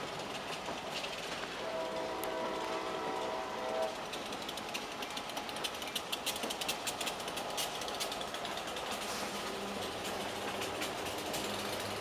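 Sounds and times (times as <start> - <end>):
train wheels clicking over rails: 0.0 - 12.0.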